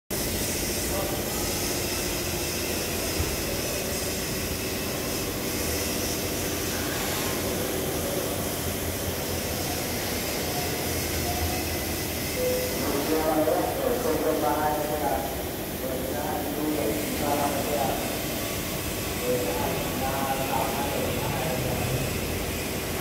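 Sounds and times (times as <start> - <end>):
mechanical drone with low hum: 0.1 - 23.0.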